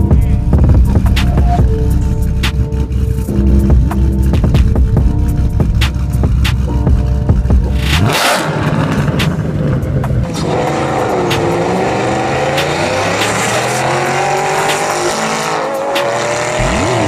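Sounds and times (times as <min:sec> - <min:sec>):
car engine accelerating: 0:00.0 - 0:17.0
tyre squeal: 0:01.2 - 0:01.7.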